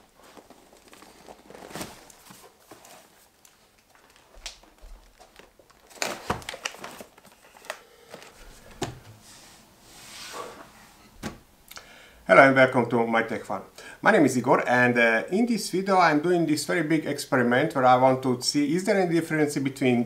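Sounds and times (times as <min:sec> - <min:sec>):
rustling of handling: 0:00.0 - 0:11.4.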